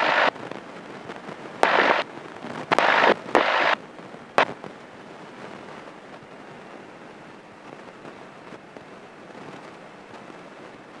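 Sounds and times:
intercom hiss bursts: 0:00.0 - 0:00.3, 0:01.6 - 0:02.0, 0:02.7 - 0:03.8
low steady background noise: 0:00.0 - 0:11.0
intercom clicks: 0:02.7 - 0:03.8.

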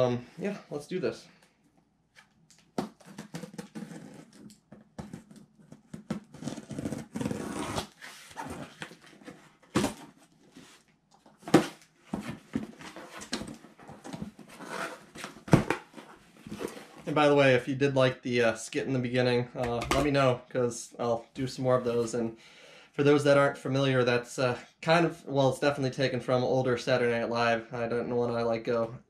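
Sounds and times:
cardboard rustling: 0:05.0 - 0:17.1.

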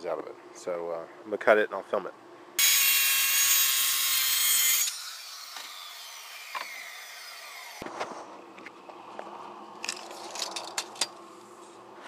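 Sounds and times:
circular saw cutting plywood: 0:02.6 - 0:07.8.

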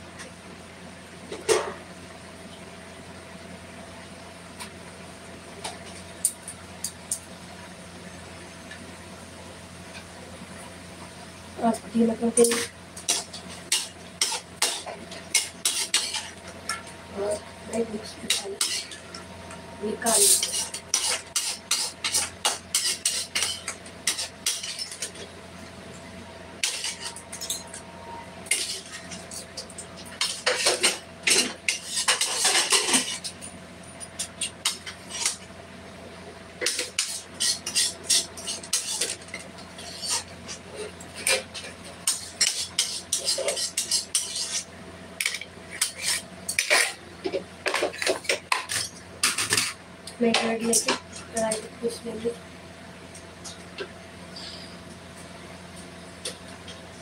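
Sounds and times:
steady low hum: 0:00.0 - 0:57.0
steel spoon scraping a pan: 0:12.4 - 0:19.2, 0:19.8 - 0:25.2, 0:26.6 - 0:33.4, 0:36.6 - 0:47.0.

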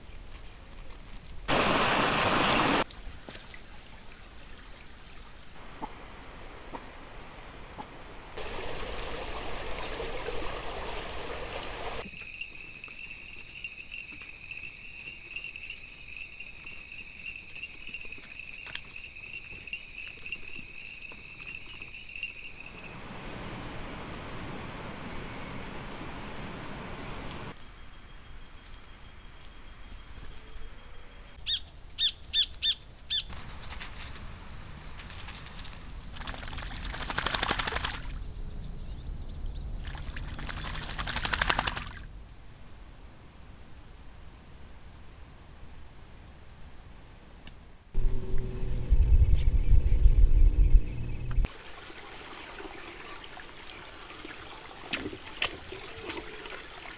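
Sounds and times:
steady hiss: 0:01.5 - 0:03.3, 0:08.2 - 0:12.1
night insects trilling: 0:01.8 - 0:05.6, 0:12.0 - 0:27.6
duck splashing and flapping wings: 0:07.6 - 0:12.1, 0:35.0 - 0:38.2, 0:39.8 - 0:42.1, 0:54.3 - 0:56.9.

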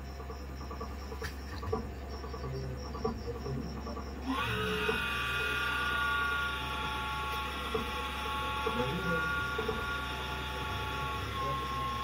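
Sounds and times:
low electrical hum: 0:00.0 - 0:12.0
hot air blower whine: 0:04.2 - 0:12.0.

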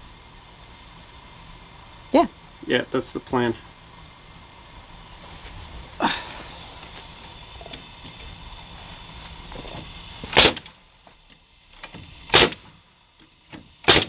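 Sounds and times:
nail gun firing: 0:10.3 - 0:10.7, 0:11.9 - 0:12.7, 0:13.5 - 0:14.0.

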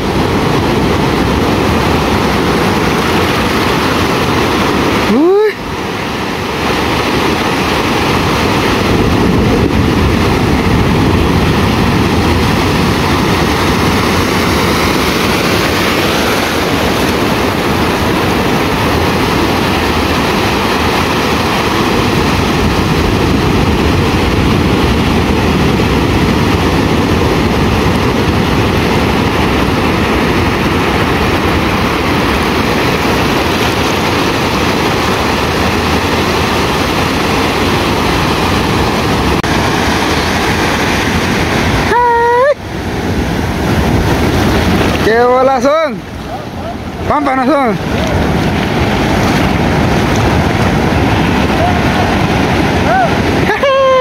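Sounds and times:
ocean waves breaking: 0:00.0 - 0:54.0.

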